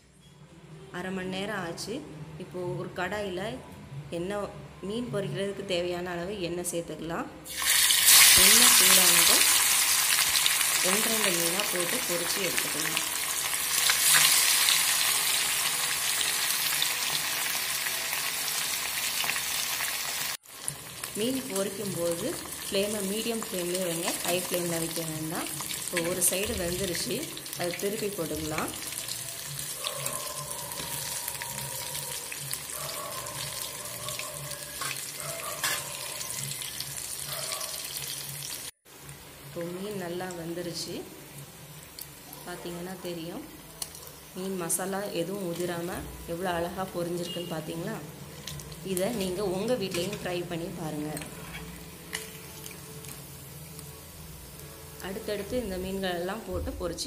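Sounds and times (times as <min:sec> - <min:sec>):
fish deep-frying in oil: 0:07.5 - 0:38.7.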